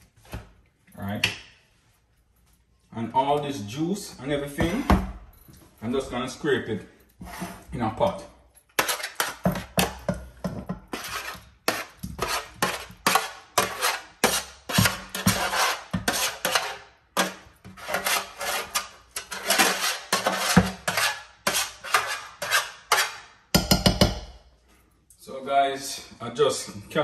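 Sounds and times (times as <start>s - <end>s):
spatula scraping metal tray: 7.2s - 7.8s, 8.8s - 23.4s
spatula knocking on tray and pot: 23.5s - 24.3s.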